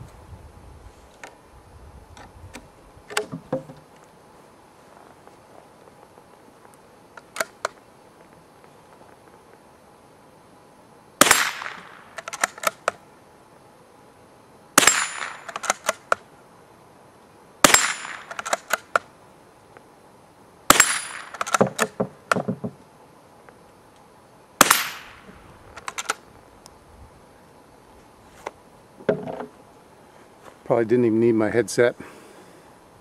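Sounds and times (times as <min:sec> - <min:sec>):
metallic clicks of rifle bolt: 0:07.2 - 0:07.8, 0:11.6 - 0:13.0, 0:15.2 - 0:16.2, 0:18.0 - 0:19.1, 0:21.1 - 0:22.0, 0:25.7 - 0:26.2
soft rifle shots: 0:11.2 - 0:12.9, 0:14.8 - 0:16.1, 0:17.6 - 0:19.0, 0:20.7 - 0:21.9, 0:24.6 - 0:25.3.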